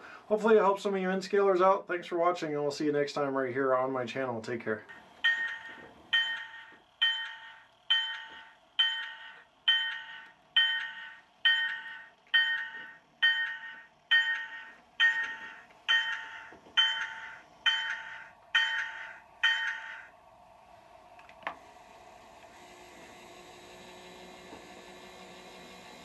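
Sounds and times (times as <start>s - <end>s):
thin locomotive bell from small speaker: 5.2s - 20.1s.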